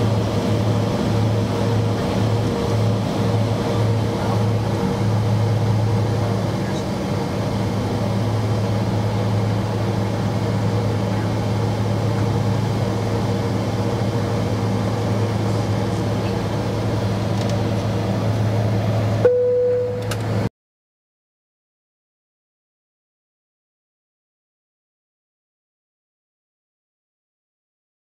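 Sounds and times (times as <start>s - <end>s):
aircraft cabin rushing noise: 0.1s - 19.2s
short steady tone: 19.2s - 20.3s
click: 20.0s - 20.3s.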